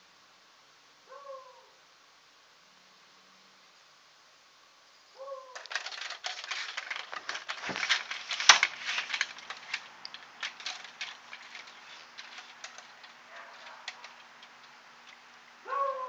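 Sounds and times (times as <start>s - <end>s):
dog barking: 1.1s - 1.7s, 5.2s - 5.6s, 13.3s - 13.9s, 15.6s - 16.0s
clicks and crackles: 5.5s - 15.6s.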